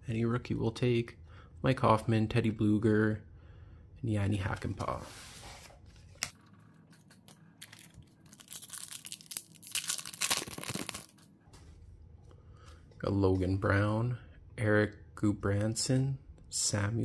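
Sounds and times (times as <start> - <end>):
foil wrapper tearing and crinkling: 7.6 - 11.2.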